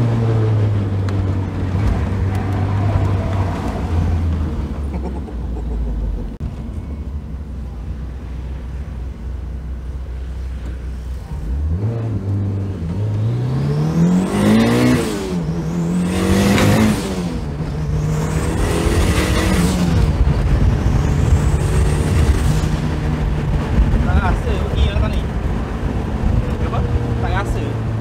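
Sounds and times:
car engine accelerating hard: 0:11.3 - 0:28.0.

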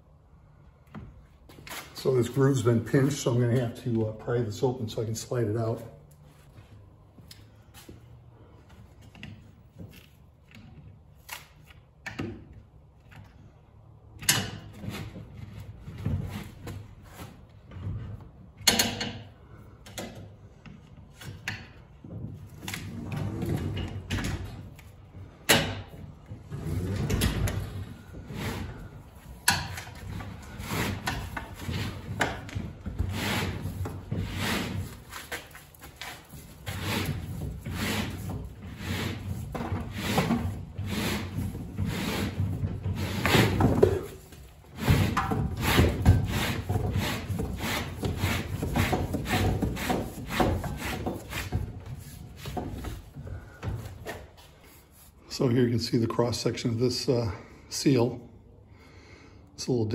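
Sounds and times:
rubber scraping in a metal track: 0:26.3 - 0:53.1.

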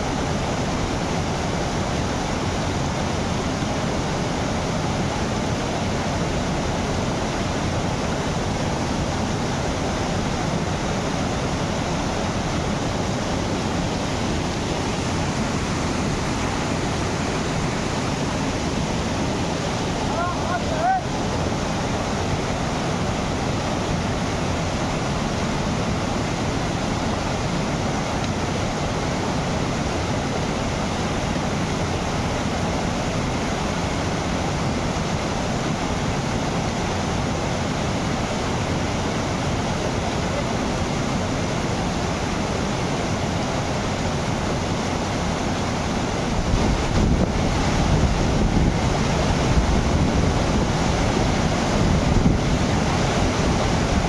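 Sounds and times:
rushing falling water: 0:00.0 - 0:54.0
wind rumble on microphone: 0:46.3 - 0:54.0.

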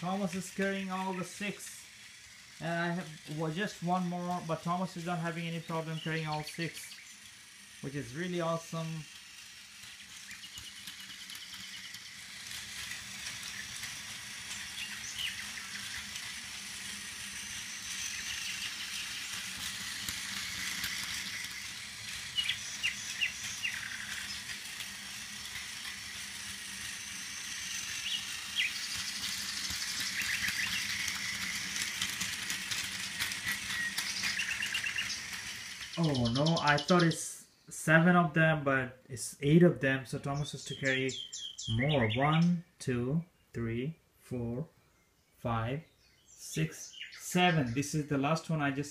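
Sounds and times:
wheels clicking over track joints: 0:00.0 - 0:37.3, 0:39.5 - 0:42.6, 0:46.4 - 0:48.9
toy train motor buzzing whine: 0:00.0 - 0:43.5, 0:45.4 - 0:48.9.

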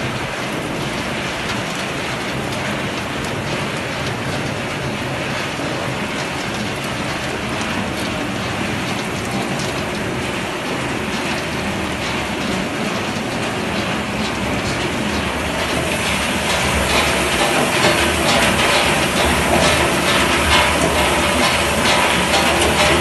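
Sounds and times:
production line machinery running: 0:00.0 - 0:23.0.

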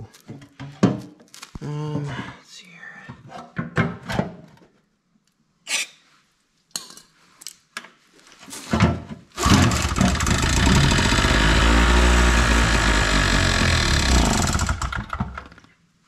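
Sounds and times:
knocks and handling sounds: 0:00.0 - 0:02.2
generator engine running: 0:09.4 - 0:15.1.

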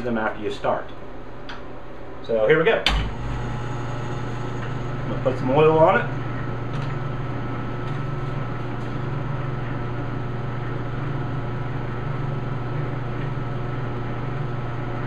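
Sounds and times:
metal lathe humming: 0:02.9 - 0:09.8.

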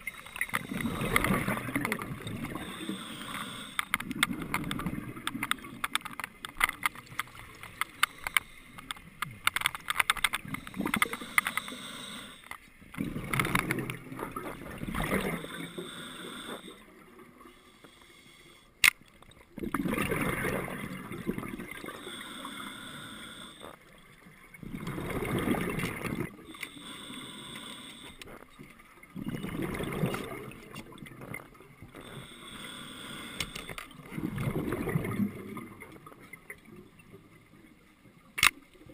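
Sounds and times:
exhalation bubbling rush: 0:00.5 - 0:02.9, 0:12.9 - 0:15.6, 0:19.6 - 0:21.9, 0:24.6 - 0:26.4, 0:29.2 - 0:31.3, 0:34.1 - 0:36.1
regulator inhalation hiss: 0:02.5 - 0:03.9, 0:10.6 - 0:12.5, 0:15.4 - 0:16.8, 0:21.9 - 0:23.8, 0:26.6 - 0:28.2, 0:32.0 - 0:33.8.

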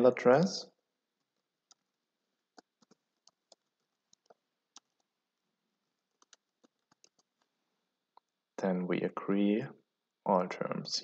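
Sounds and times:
keyboard typing: 0:01.1 - 0:05.2, 0:05.8 - 0:08.4.

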